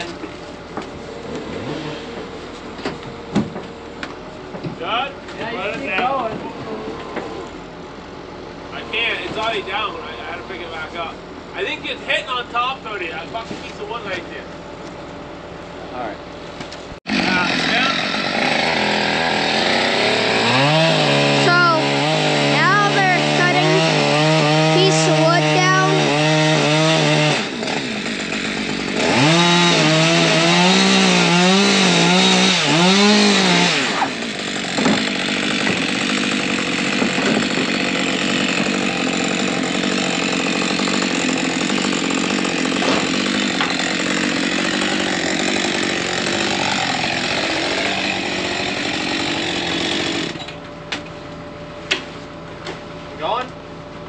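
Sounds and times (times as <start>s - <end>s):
chainsaw revving and sawing wood: 0.0s - 3.7s, 6.6s - 7.6s, 17.0s - 50.6s.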